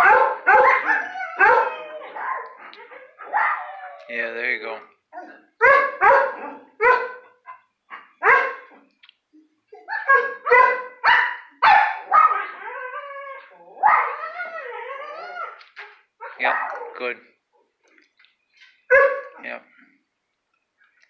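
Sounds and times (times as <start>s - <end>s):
dog barking: 0.0s - 3.7s, 5.6s - 8.8s, 9.8s - 12.5s, 13.8s - 14.2s, 16.2s - 17.0s, 18.9s - 19.5s
dog howling: 0.0s - 4.2s, 11.8s - 15.6s.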